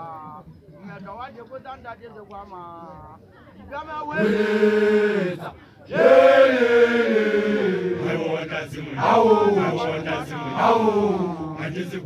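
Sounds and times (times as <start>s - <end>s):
group of voices chanting: 4.1s - 12.0s.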